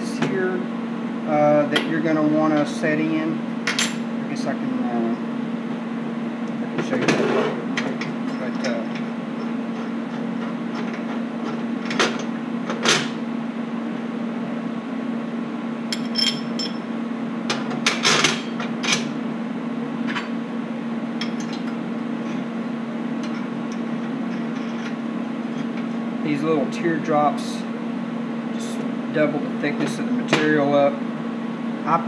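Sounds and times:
steady hum: 0:00.0 - 0:32.0.

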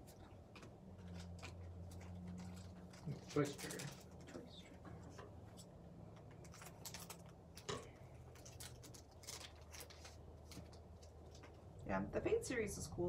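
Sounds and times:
foil pack crinkling: 0:00.0 - 0:04.8, 0:06.3 - 0:11.8
scissors snipping foil: 0:06.4 - 0:11.5.

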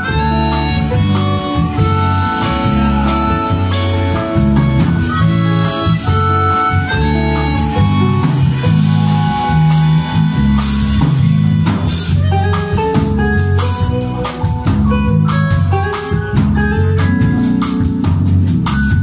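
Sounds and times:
drums: 0:00.0 - 0:19.0
electric bass: 0:00.0 - 0:19.0
electric guitar: 0:00.0 - 0:19.0
harmonicas playing melody: 0:00.0 - 0:19.0.

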